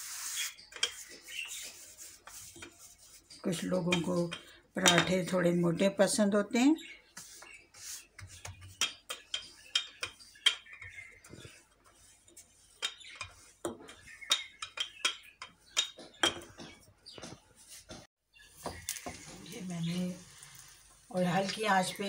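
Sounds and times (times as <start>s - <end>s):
rolling pin on marble countertop: 0.0s - 5.2s, 7.1s - 19.5s
hands patting dough: 7.1s - 19.4s.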